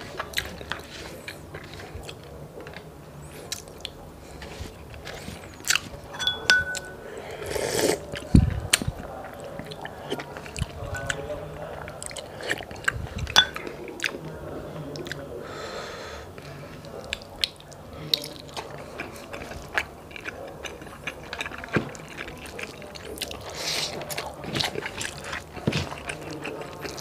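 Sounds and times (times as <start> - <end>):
chewing and lip smacking: 17.0 - 27.0.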